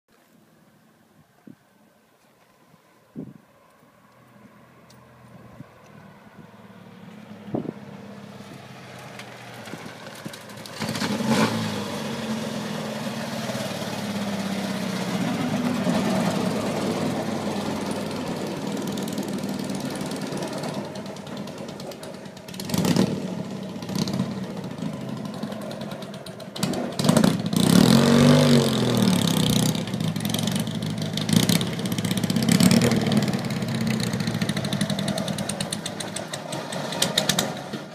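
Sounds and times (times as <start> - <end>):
racecar engine revving: 9.1 - 37.9.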